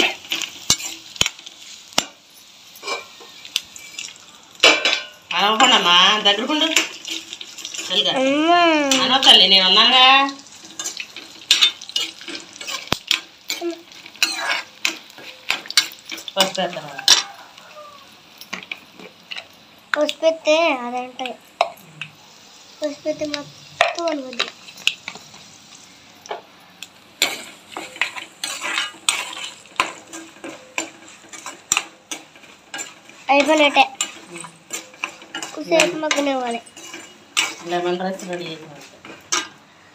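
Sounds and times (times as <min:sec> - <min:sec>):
oil sizzling: 0:00.0 - 0:39.9
ladle scraping metal pan: 0:27.2 - 0:39.6.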